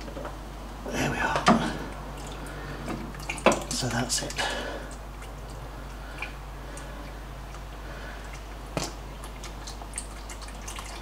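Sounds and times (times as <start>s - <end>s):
oil dripping into plastic pan: 1.5s - 11.0s.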